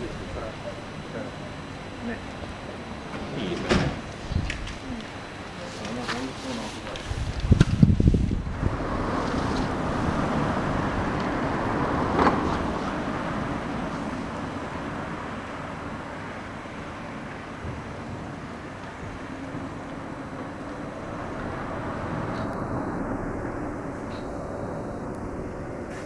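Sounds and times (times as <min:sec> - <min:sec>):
electric train passing slowly: 0:00.0 - 0:26.0
street traffic noise: 0:00.0 - 0:26.0.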